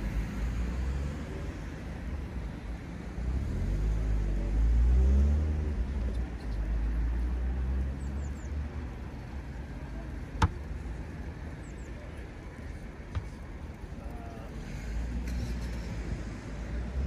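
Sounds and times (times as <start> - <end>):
vehicle passing: 0.0 - 10.0
traffic rumble: 0.0 - 17.0.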